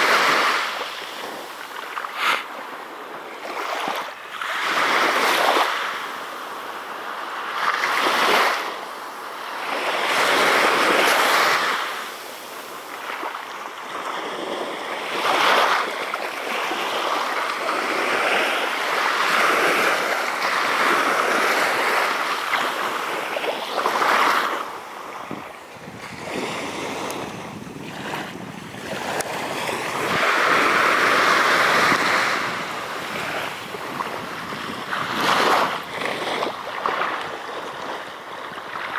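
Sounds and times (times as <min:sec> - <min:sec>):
small waves washing onto sand: 0:00.0 - 0:38.9.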